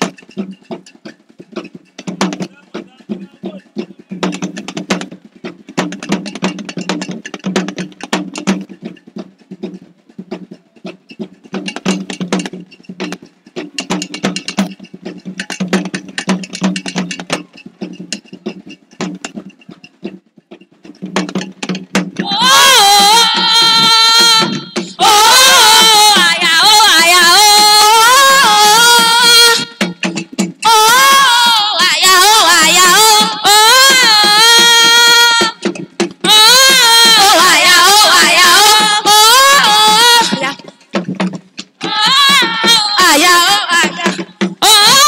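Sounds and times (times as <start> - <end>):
rapid drum strokes: 0.0 - 45.0
high voice singing: 22.2 - 29.8, 30.6 - 40.7, 41.8 - 45.0.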